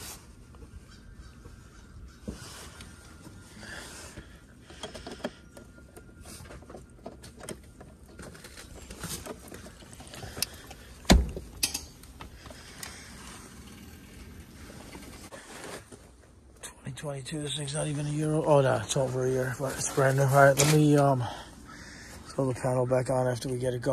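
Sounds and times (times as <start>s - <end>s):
clicks and rattles of electrical box: 4.1s - 13.0s.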